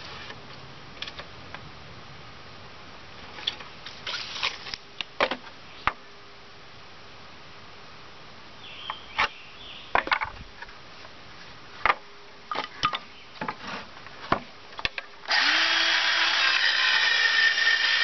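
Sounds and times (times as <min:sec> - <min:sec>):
electric chainsaw running: 0:15.3 - 0:18.0.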